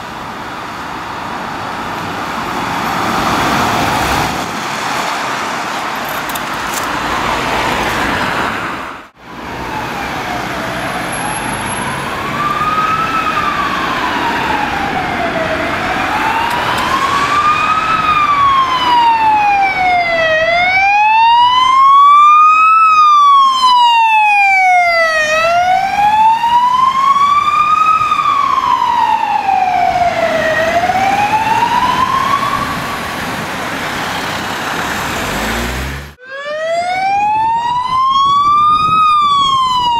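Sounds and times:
passing road traffic: 0.0 - 39.9
ambulance siren wailing: 9.2 - 39.9.

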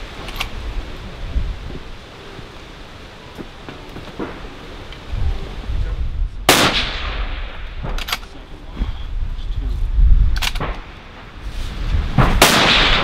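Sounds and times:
wind rumble on microphone: 0.0 - 13.0
rifle shots: 6.5 - 8.2, 12.2 - 13.0.

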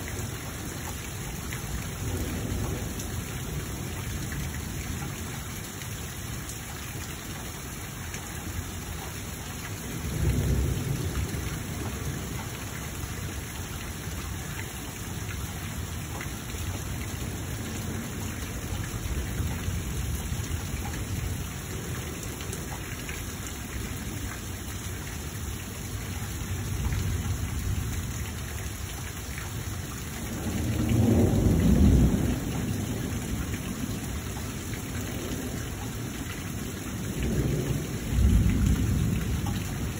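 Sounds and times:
steady rain: 0.0 - 39.9
rolling thunder: 10.0 - 12.4, 30.2 - 34.0, 35.1 - 39.9.

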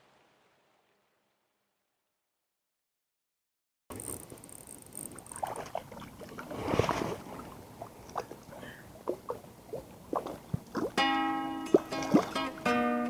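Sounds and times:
fish splashing and thrashing in water: 3.9 - 11.0, 11.7 - 12.5
water drops plopping: 9.0 - 12.7.

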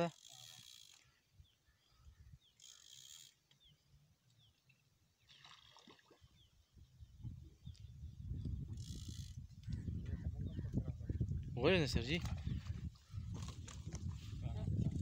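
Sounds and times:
fishing reel clicking whirr: 2.6 - 3.4.

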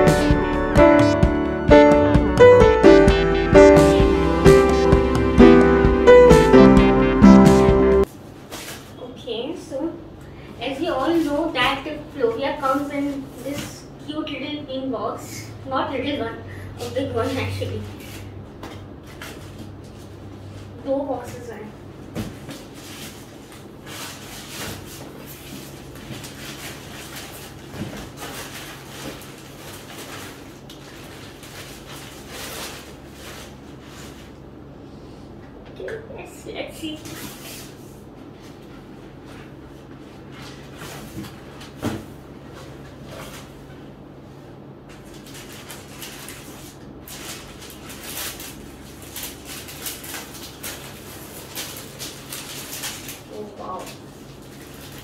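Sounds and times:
plastic packaging rustling: 22.2 - 34.4, 44.9 - 55.0.

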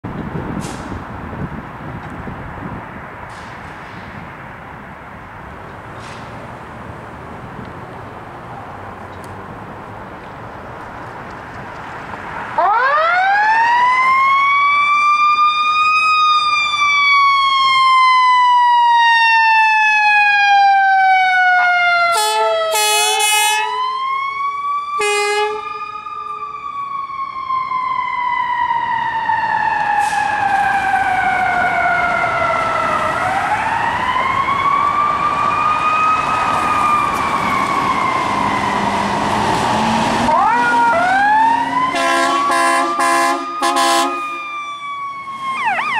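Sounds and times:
fire truck siren: 12.0 - 45.9
air horn blasts: 22.1 - 23.8, 25.0 - 25.8, 41.9 - 44.4
diesel engine revving: 30.0 - 44.4.

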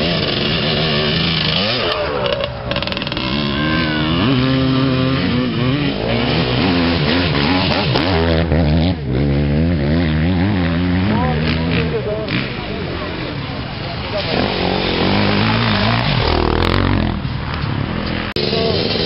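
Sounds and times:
dirt bike engine revving: 0.0 - 19.0.

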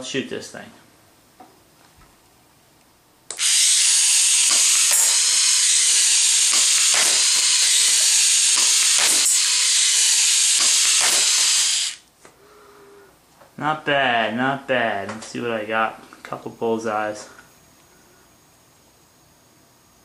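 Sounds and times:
toy gun motor whirring: 3.3 - 12.0.

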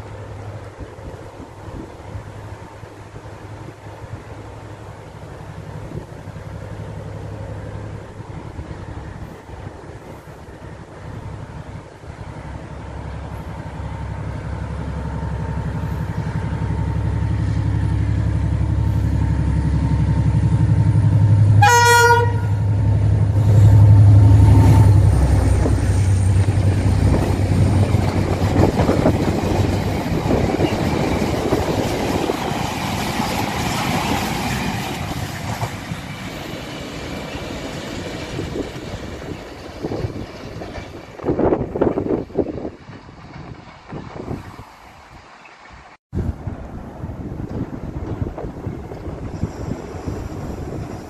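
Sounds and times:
locomotive engine drone: 0.0 - 45.3
train horn blast: 21.6 - 22.7.

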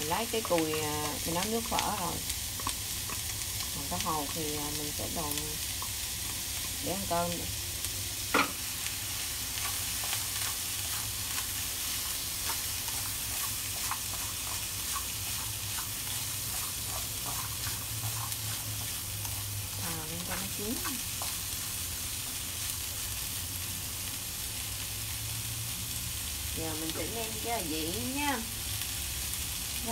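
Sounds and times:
food sizzling in a frying pan: 0.0 - 29.9
chopsticks tapping a pan: 0.2 - 4.8, 8.3 - 8.6, 12.4 - 21.4.

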